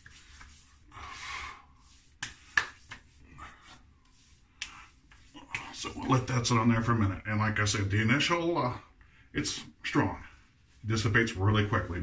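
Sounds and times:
hands rubbing face: 0:00.0 - 0:06.5.

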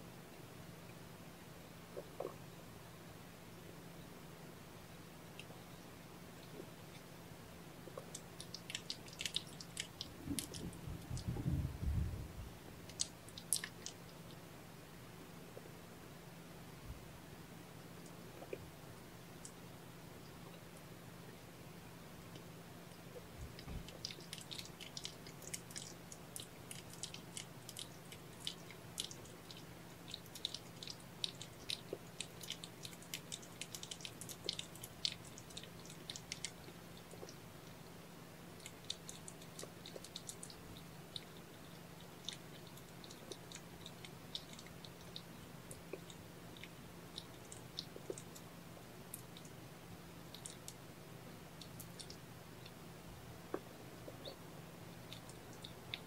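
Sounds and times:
low steady hum: 0:00.0 - 0:56.0
cats licking with wet clicks: 0:07.9 - 0:11.3, 0:12.8 - 0:14.4, 0:23.4 - 0:37.9, 0:38.5 - 0:49.6, 0:55.0 - 0:56.0.

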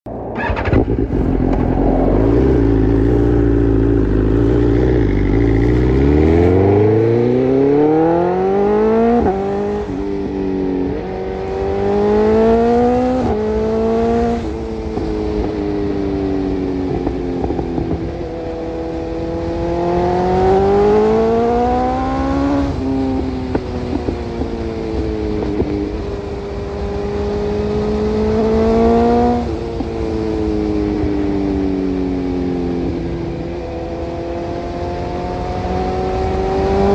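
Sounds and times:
truck engine idling and revving: 0:00.1 - 0:09.9.

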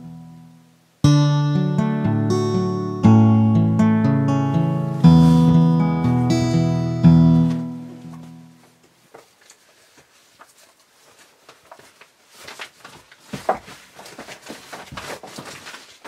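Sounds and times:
acoustic guitar chord ringing: 0:00.0 - 0:08.7
faint clicks and rustles: 0:08.2 - 0:16.0.

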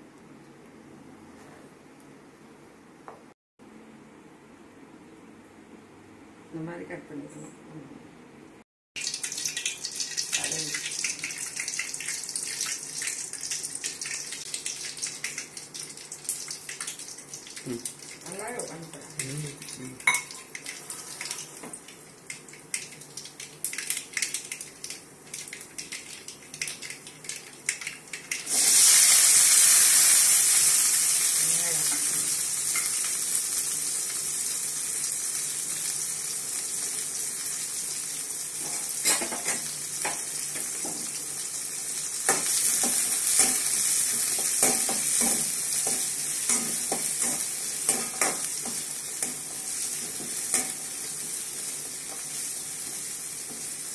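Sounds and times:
loud sizzle of shallots in oil: 0:09.0 - 0:53.9
spices crackling in hot oil: 0:09.0 - 0:53.9
spoon clinking and scraping pan: 0:20.1 - 0:20.5.

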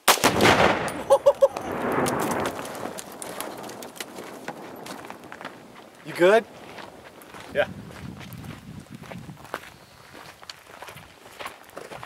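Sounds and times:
falling debris pattering: 0:00.2 - 0:07.6
explosion rumble: 0:00.2 - 0:08.6.

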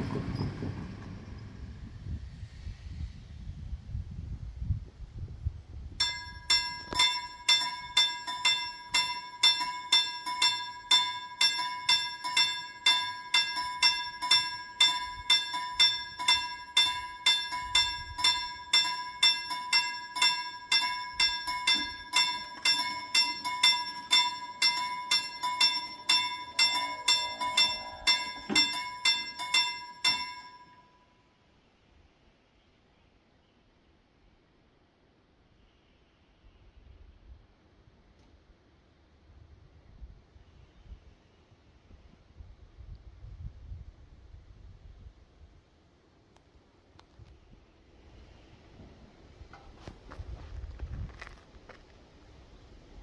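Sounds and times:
level crossing warning bell: 0:06.0 - 0:31.3.

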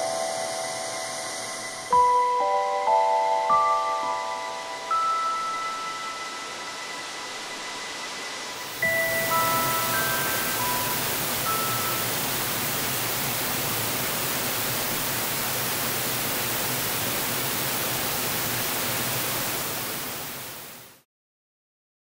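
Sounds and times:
waterfall rushing: 0:08.6 - 0:21.0.

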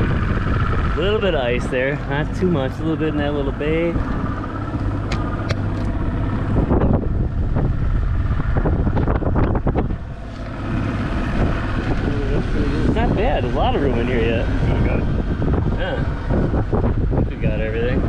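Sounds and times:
engine running: 0:00.0 - 0:18.0
wind on microphone: 0:00.0 - 0:18.0.

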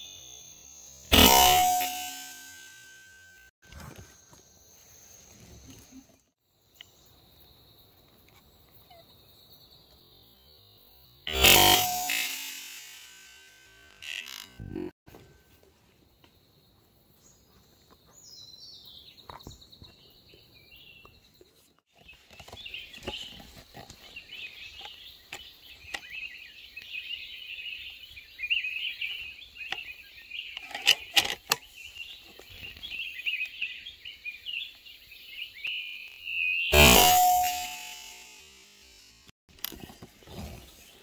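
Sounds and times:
falling series of bird notes: 0:01.0 - 0:03.5, 0:11.3 - 0:14.9, 0:36.6 - 0:39.3
birds chirping: 0:17.2 - 0:39.1.

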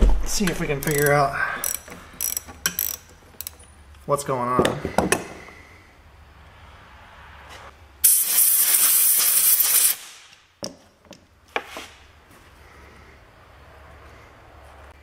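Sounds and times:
loud steady hiss: 0:06.0 - 0:10.5.

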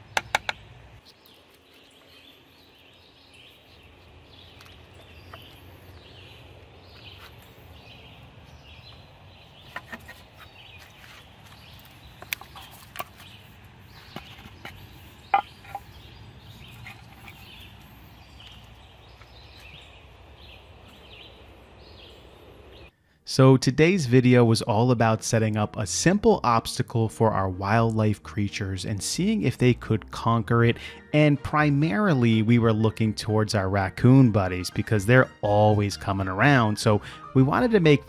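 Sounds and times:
birds calling: 0:00.0 - 0:23.0, 0:30.7 - 0:31.0.

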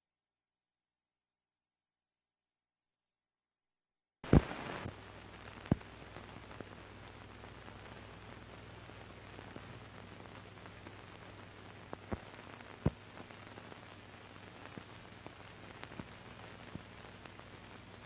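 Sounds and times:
film soundtrack hiss and hum: 0:04.2 - 0:18.0.

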